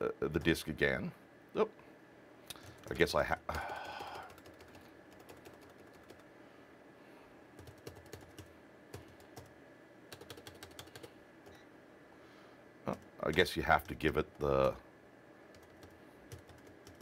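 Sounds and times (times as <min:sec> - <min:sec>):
keyboard typing: 0:02.5 - 0:06.3, 0:07.6 - 0:09.5, 0:10.1 - 0:11.6, 0:15.5 - 0:17.0.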